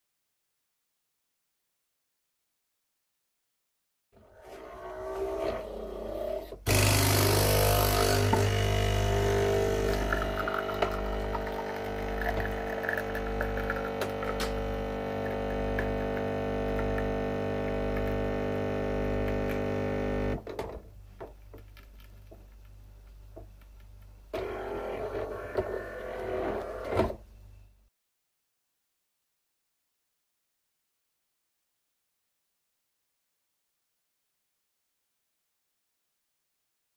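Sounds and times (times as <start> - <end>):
coffee machine hiss: 6.7 - 20.3
coffee machine pump humming: 6.7 - 20.4, 24.3 - 27.1.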